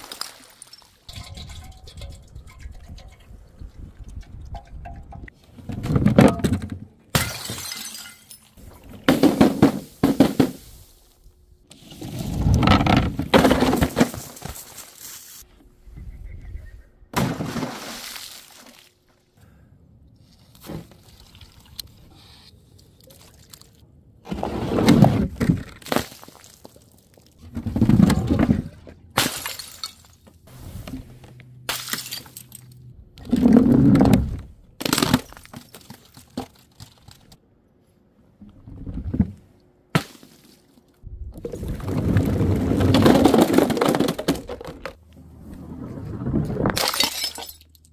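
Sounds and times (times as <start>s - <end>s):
glass jars and bottles shattering: 0.2s - 3.3s, 7.1s - 8.6s, 29.2s - 30.2s, 31.7s - 32.8s, 46.8s - 47.9s.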